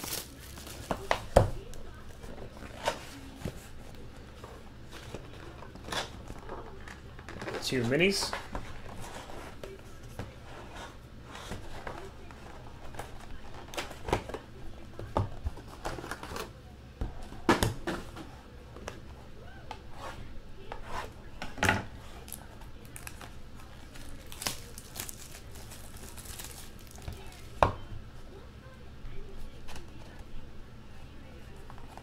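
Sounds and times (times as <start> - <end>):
plastic wrap crinkling and tearing: 0.0 - 3.2, 22.2 - 27.6.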